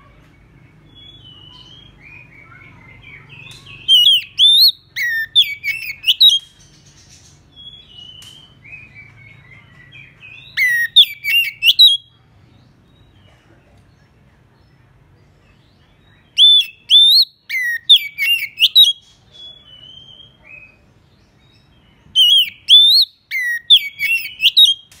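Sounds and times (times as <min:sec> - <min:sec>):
bird singing whistled phrases: 0:03.2 - 0:06.5, 0:10.4 - 0:12.1, 0:16.3 - 0:20.8, 0:22.2 - 0:24.9.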